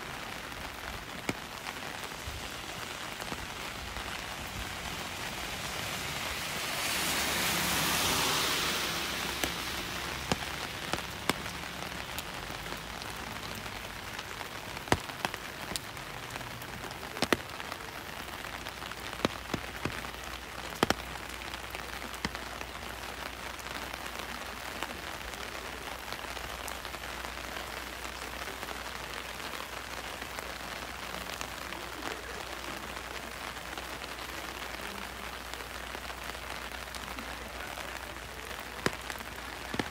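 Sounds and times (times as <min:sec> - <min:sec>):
rain falling: 0:00.0 - 0:39.9
single raindrops ticking: 0:07.6 - 0:25.4, 0:38.5 - 0:39.9.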